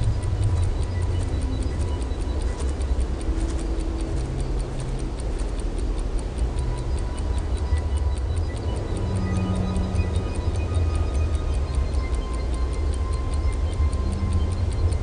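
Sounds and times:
clock-like ticking: 0.0s - 15.0s
low drone notes: 0.0s - 15.0s.

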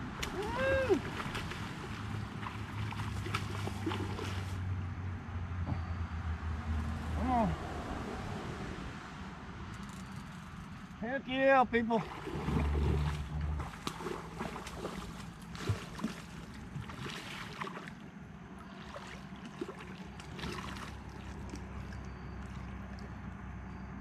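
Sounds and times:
water splashing and sloshing: 0.0s - 4.8s, 11.8s - 24.0s.

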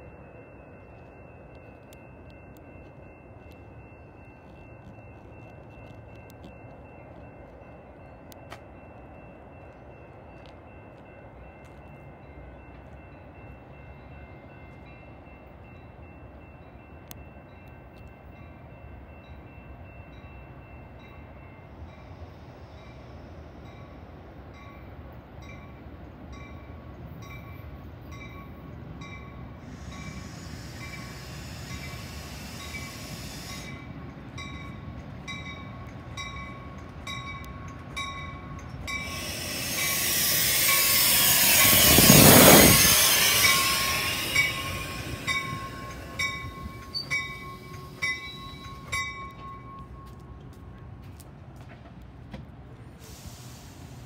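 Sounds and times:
crossing warning bells dinging: 0.0s - 53.0s
train rushing past: 27.1s - 54.0s
wheels clicking over rail joints: 29.7s - 52.6s.

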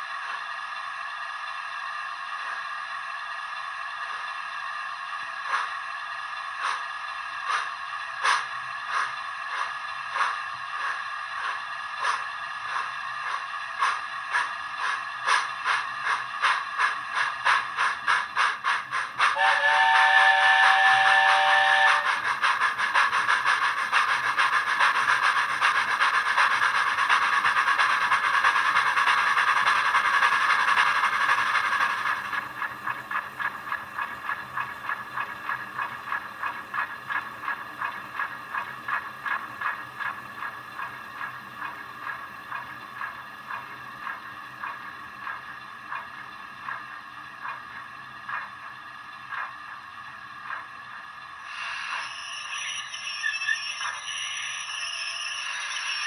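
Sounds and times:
steam locomotive chuffs with hiss: 0.0s - 56.0s
steam whistle: 19.4s - 22.2s.

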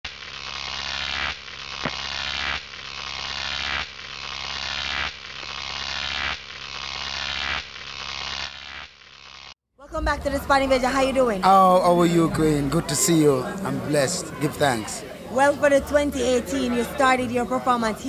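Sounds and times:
buzzing hissy electronic sweep: 0.1s - 11.5s.

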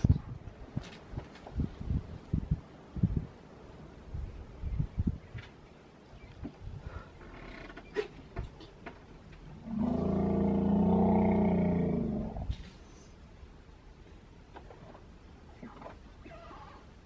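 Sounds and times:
elephant roaring: 9.6s - 12.6s.

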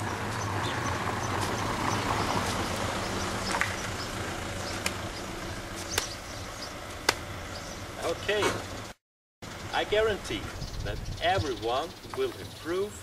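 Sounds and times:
low motor vehicle hum: 0.0s - 13.0s
steady outdoor noise: 0.0s - 13.0s
sharp taps: 5.9s - 6.2s, 7.0s - 7.3s.

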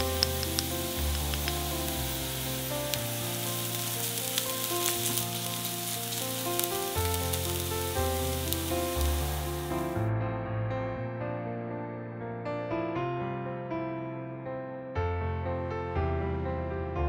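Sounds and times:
vegetables sizzling in oil: 0.0s - 10.0s
soft piano music: 0.0s - 17.0s.

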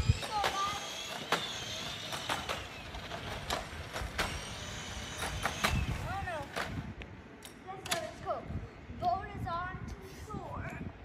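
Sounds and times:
electric scooter motor whine: 0.0s - 6.9s
scooter wheels on concrete: 0.0s - 8.3s.

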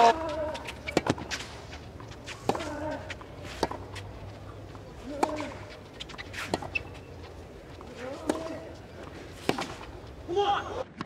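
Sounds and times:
racket striking tennis ball: 8.0s - 10.2s.

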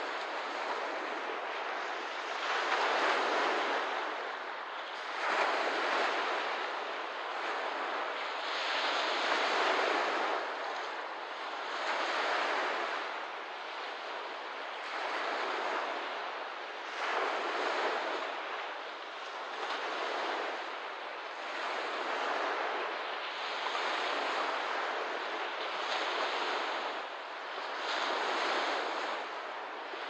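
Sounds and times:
small waves washing onto shore: 0.0s - 30.0s.

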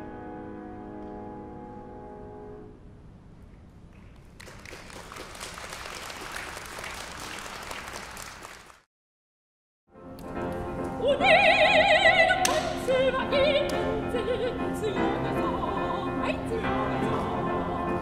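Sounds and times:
audience applause: 4.1s - 8.9s.

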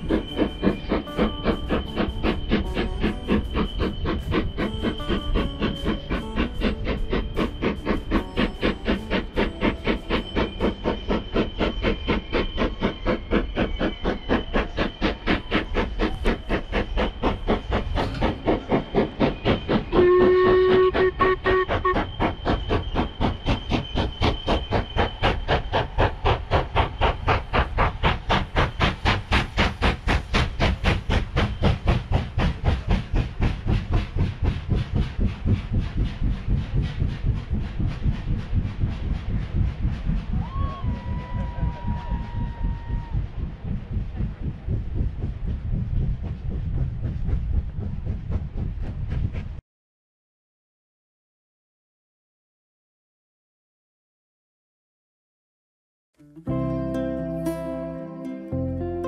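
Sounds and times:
steam locomotive chuffing: 0.0s - 49.6s
locomotive whistle blast: 19.6s - 25.4s.

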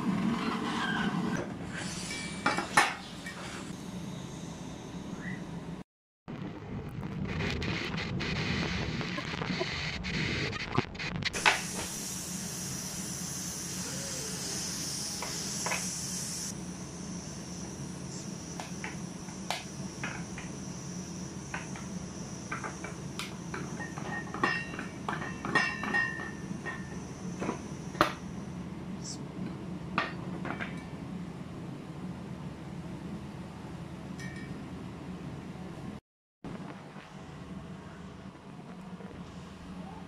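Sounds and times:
pressure cooker hissing: 11.3s - 28.5s.

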